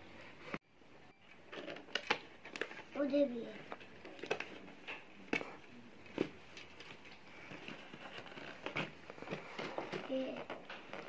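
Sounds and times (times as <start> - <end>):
cardboard packaging scraping: 5.4 - 11.0.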